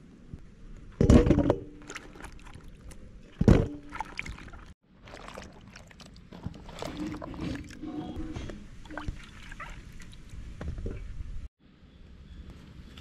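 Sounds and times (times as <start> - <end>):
water splashing and sloshing: 0.9 - 11.3.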